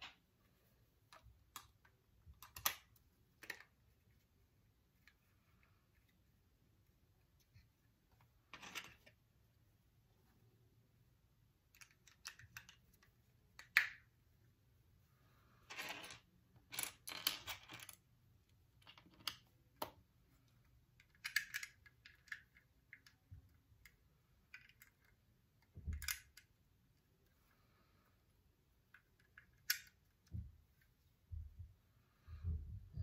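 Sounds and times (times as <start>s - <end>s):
plastic bricks clicking and rattling: 11.7s - 14.0s, 21.0s - 23.2s, 23.8s - 26.5s.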